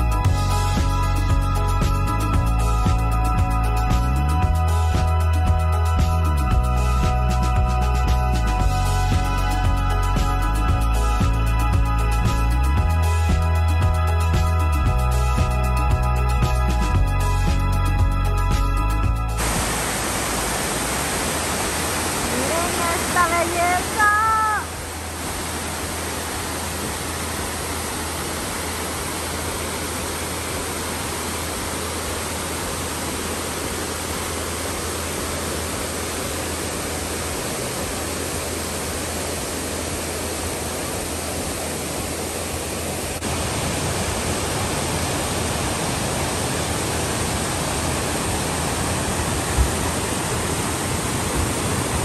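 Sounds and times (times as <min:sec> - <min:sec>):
waterfall cascading over rocks: 0:00.0 - 0:52.0
person shouting: 0:24.0 - 0:24.7.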